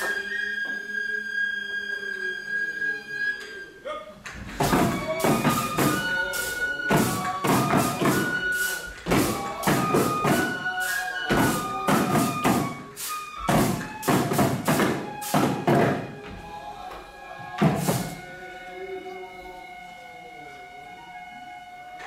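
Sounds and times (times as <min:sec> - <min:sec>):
bamboo flute high notes: 0:00.0 - 0:22.0
small drums beating: 0:04.3 - 0:18.4.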